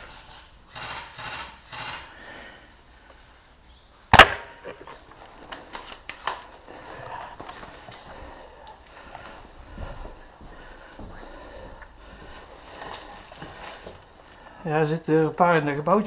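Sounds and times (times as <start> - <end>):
airsoft gun shot: 4.1 - 4.6.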